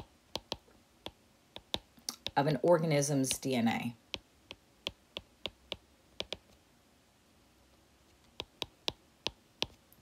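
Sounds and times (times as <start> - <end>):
stylus tapping on tablet screen: 0.0 - 2.4, 3.2 - 3.5, 4.1 - 6.6, 8.3 - 9.8.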